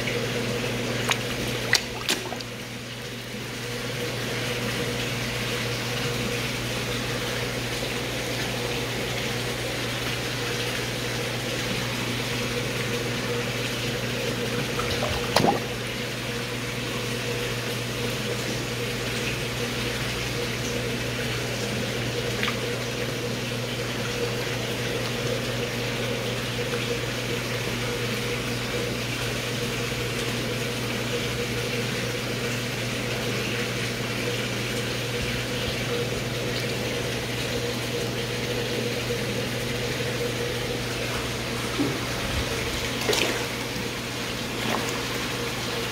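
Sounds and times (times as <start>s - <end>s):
pump hum: 0.0s - 45.9s
water rushing: 0.9s - 3.1s, 14.4s - 16.0s, 41.3s - 45.9s.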